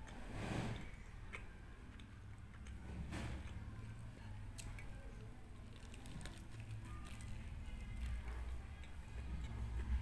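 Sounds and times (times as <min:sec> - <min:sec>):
person chewing food: 0:00.0 - 0:04.9.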